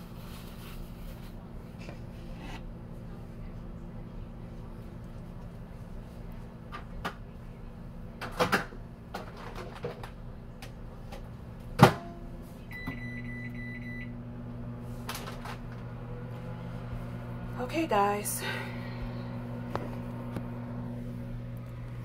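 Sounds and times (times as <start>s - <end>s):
microwave oven humming: 0.0s - 22.0s
keypad beeps: 12.7s - 14.1s.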